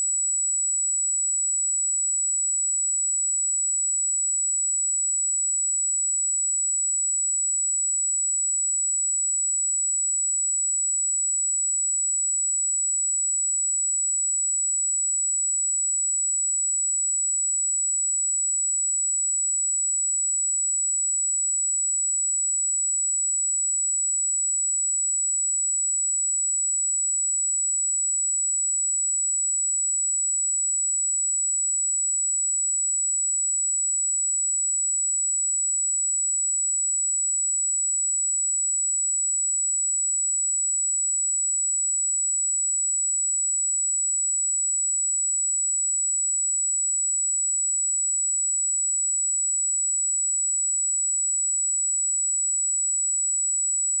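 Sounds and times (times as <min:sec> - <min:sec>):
high-pitched sine test tone: 0:35.6 - 0:54.0.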